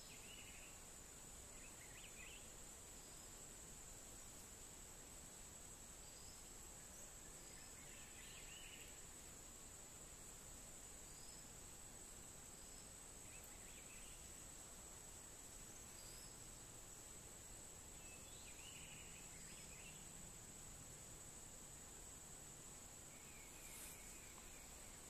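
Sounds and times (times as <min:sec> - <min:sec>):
bird chirps: 0:23.1 - 0:25.0.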